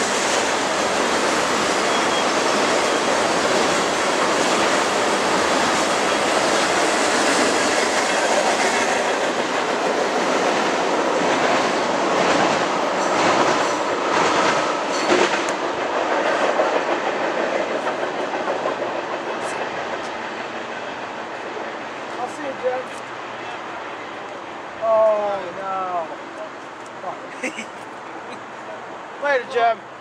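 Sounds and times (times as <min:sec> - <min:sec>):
wheels clacking over rail joints: 0:00.0 - 0:21.3
freight train rumbling past: 0:00.0 - 0:30.0.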